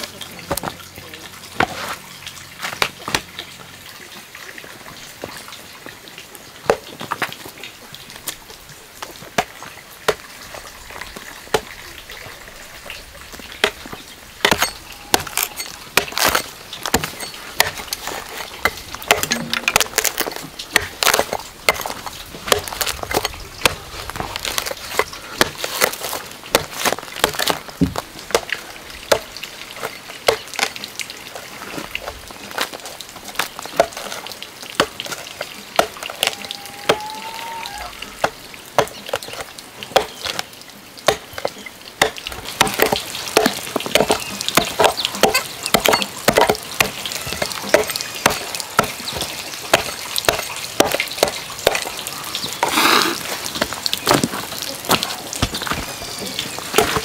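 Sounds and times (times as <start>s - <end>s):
wood chips scraping: 1.6s - 2.9s, 13.6s - 28.4s
blade striking wood: 14.4s - 28.5s, 41.1s - 51.9s.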